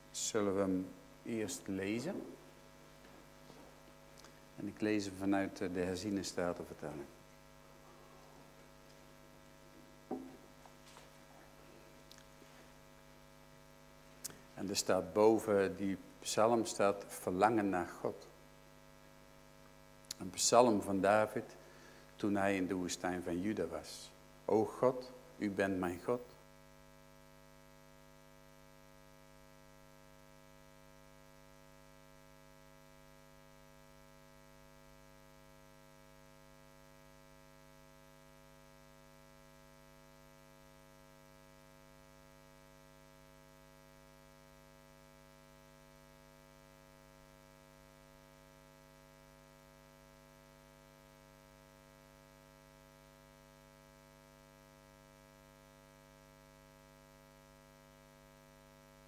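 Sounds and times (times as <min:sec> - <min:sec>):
faint electrical hum with buzzing: 0:00.0 - 0:59.0.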